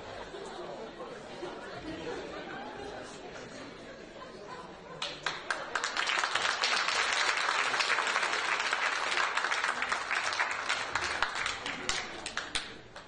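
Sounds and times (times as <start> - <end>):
audience applauding: 5.0 - 13.0.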